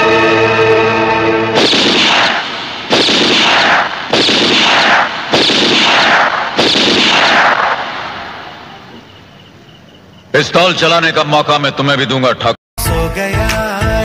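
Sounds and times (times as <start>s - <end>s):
echoing gunshots: 1.5s - 9.1s.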